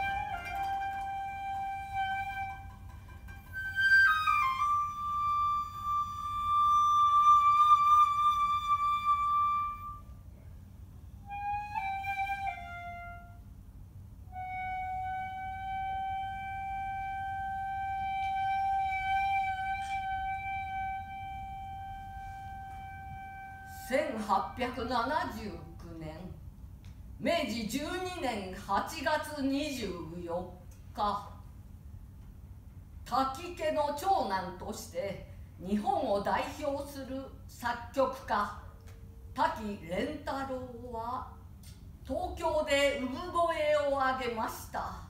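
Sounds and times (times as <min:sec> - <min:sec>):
bamboo flute playing slowly: 0:00.0 - 0:10.2, 0:11.1 - 0:13.5, 0:14.3 - 0:24.7.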